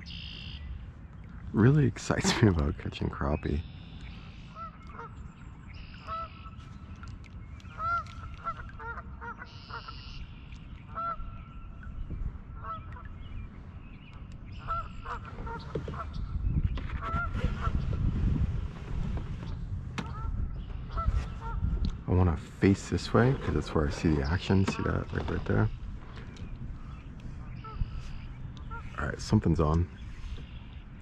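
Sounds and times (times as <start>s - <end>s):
geese honking: 4.5s - 5.2s, 5.8s - 6.7s, 7.7s - 10.2s, 10.9s - 11.4s, 12.6s - 13.1s, 14.5s - 16.2s.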